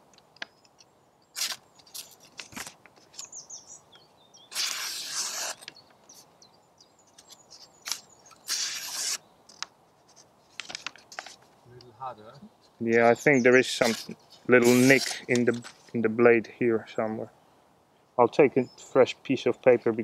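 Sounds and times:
small bird chirping: 3.1s - 9.6s
knife slicing paper: 4.5s - 5.7s, 7.9s - 9.2s, 13.8s - 15.3s.

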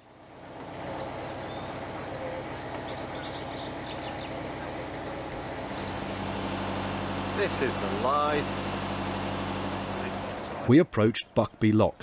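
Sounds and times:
birds chirping and calling: 0.0s - 8.4s
boat engine running: 0.0s - 10.8s.

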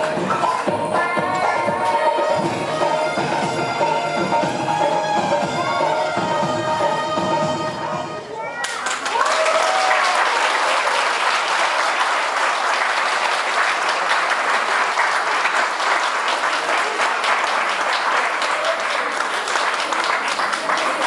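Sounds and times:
audience applauding: 8.6s - 21.0s.

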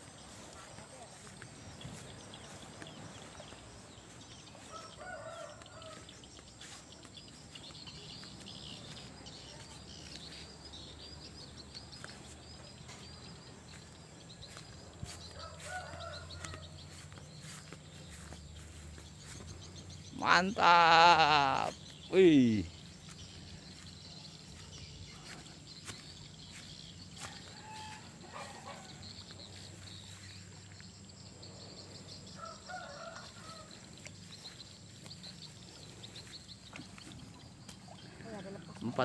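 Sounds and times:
rooster crowing faintly: 4.6s - 6.1s.

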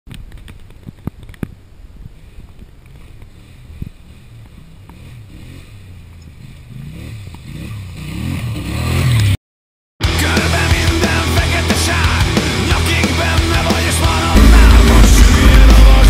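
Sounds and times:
quad bike engine revving: 2.2s - 9.4s, 10.2s - 16.0s.

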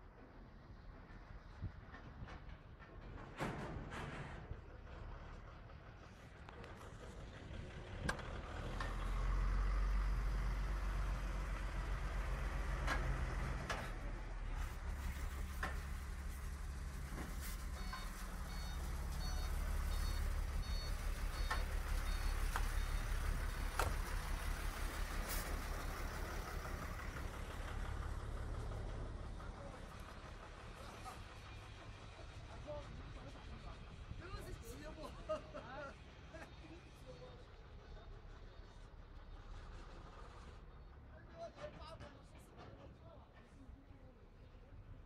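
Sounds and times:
diesel truck engine idling: 4.6s - 41.1s
quick high-pitched beeps: 17.8s - 23.0s.

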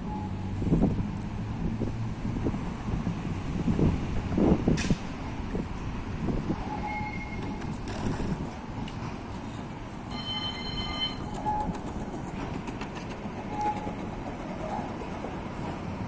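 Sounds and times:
tram rumbling: 0.0s - 16.0s
high-pitched ringing tone: 10.1s - 11.7s.

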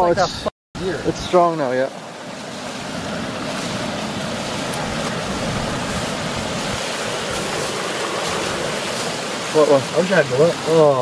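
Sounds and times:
water pouring over metal grate: 4.4s - 11.0s.

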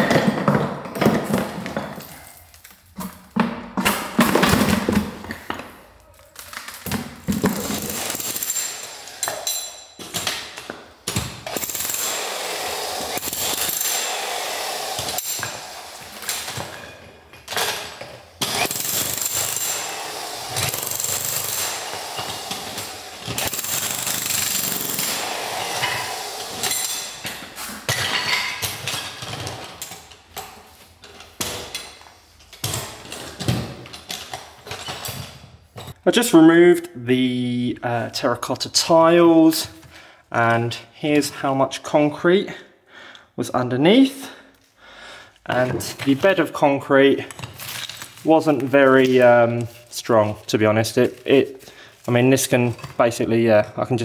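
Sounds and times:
jackhammer chiselling tiles: 6.8s - 30.2s.

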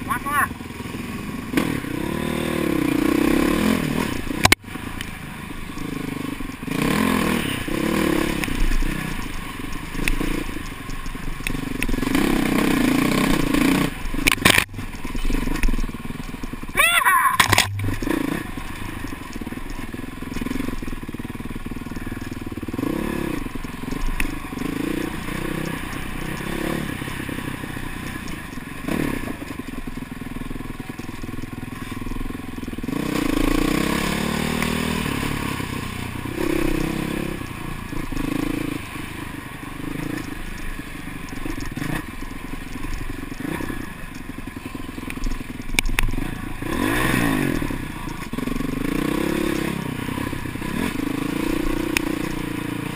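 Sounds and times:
dirt bike engine revving: 0.0s - 30.0s, 31.8s - 52.9s.

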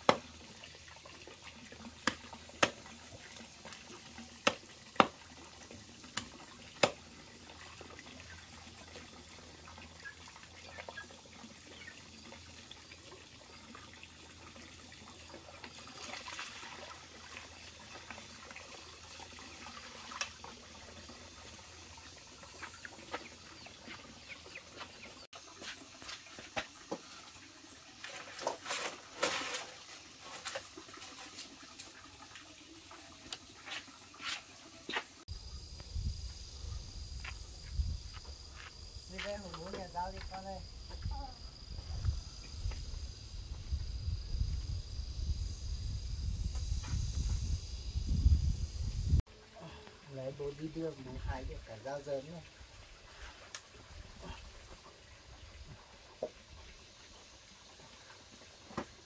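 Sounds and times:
water splashing: 0.0s - 26.8s.

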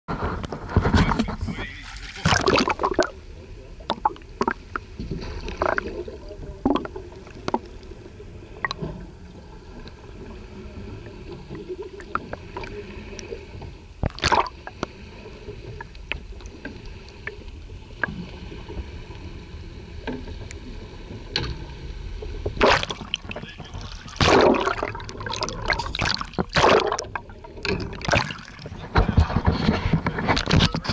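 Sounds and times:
muffled underwater rumble: 0.1s - 30.9s
water splashing and sloshing: 0.1s - 30.9s.

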